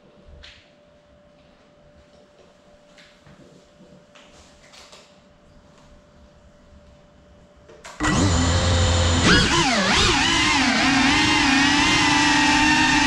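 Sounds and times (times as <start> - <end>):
drone motors whining: 8.0 - 13.0.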